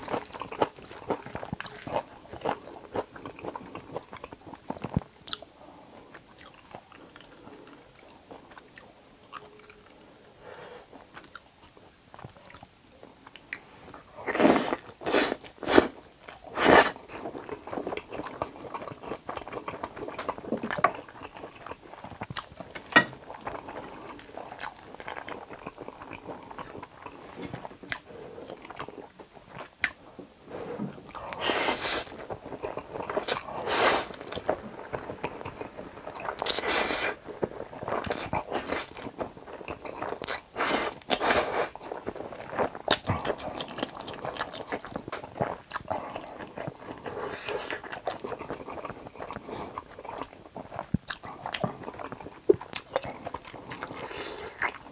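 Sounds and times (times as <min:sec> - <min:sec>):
wet chewing: 0:00.0 - 0:05.5, 0:06.1 - 0:54.9
noodles being slurped: 0:31.1 - 0:50.8.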